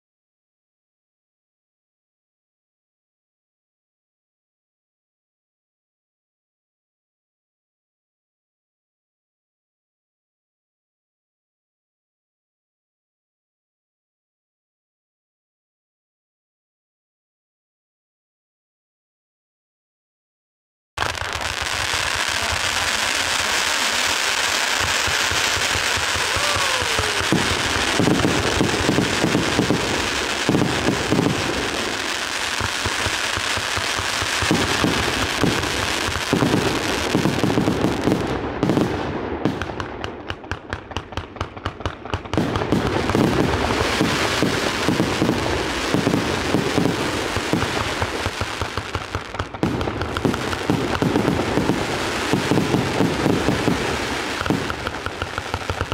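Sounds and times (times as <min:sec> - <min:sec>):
fireworks launching and bursting: 0:21.0 - 0:55.9
rapid fireworks pops: 0:21.0 - 0:55.9
fireworks hiss: 0:21.1 - 0:38.1, 0:43.0 - 0:55.9.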